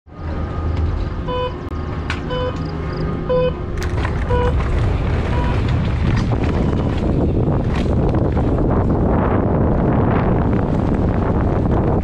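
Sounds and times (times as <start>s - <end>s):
timer beeps: 2.3s - 2.6s, 3.3s - 3.6s
wind rushing over microphone: 2.7s - 12.0s
mountain bike rolling: 3.7s - 12.0s.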